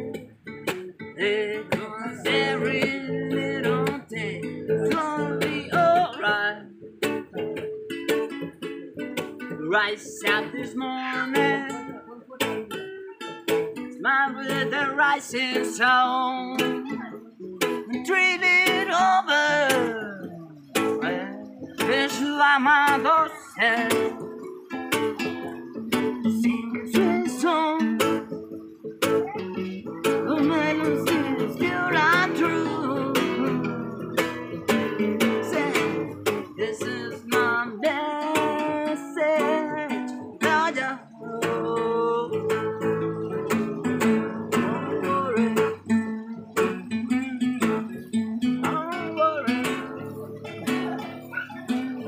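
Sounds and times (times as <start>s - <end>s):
acoustic guitars strummed and picked: 0.0s - 52.0s
man singing: 1.0s - 52.0s.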